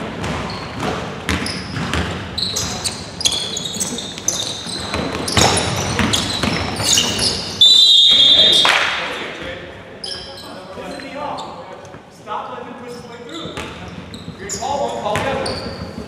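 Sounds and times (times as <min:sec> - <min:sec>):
basketball bouncing on court: 0:00.0 - 0:07.4, 0:13.4 - 0:16.0
sneakers squeaking: 0:00.0 - 0:11.8, 0:13.1 - 0:16.0.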